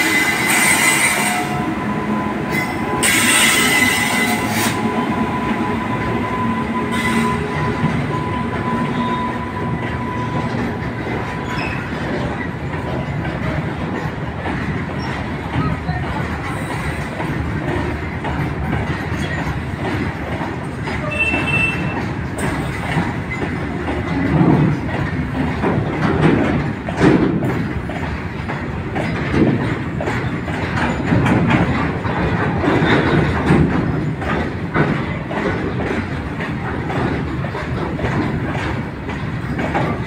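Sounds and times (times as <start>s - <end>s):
freight wagons rumbling on rails: 0.0s - 40.0s
wheels knocking over rail joints: 10.0s - 40.0s.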